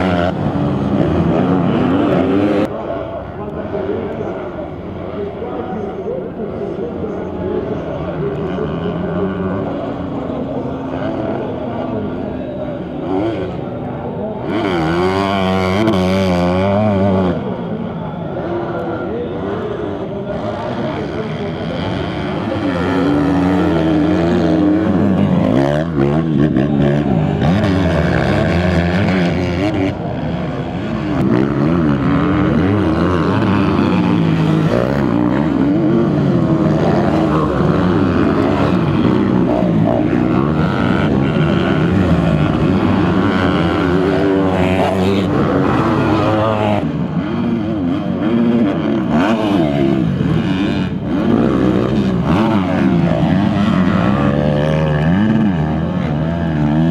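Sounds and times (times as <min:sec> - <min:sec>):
dirt bike engines revving: 0:00.0 - 0:56.9.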